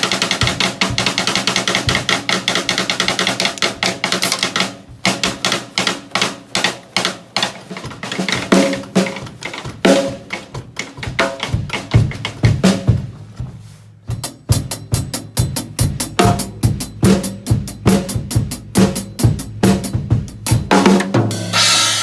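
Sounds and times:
snare drum rolls and hits: 0.0 - 15.4.

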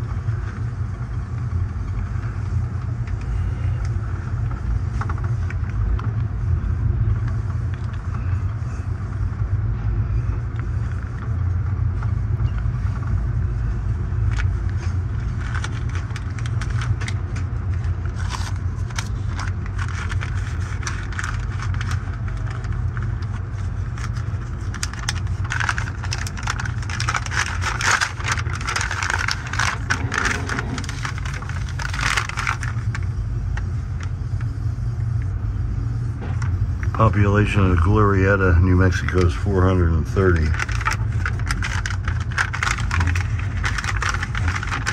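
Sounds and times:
train wheels rumbling on track: 9.7 - 33.7
metallic rattling and scraping: 24.7 - 32.9.

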